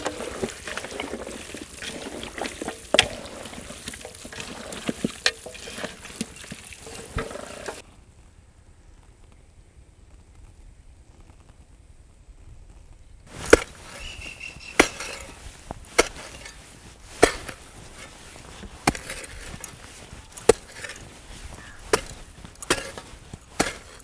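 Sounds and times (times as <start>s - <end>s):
hoe chopping into hard earth: 13.3s - 24.0s.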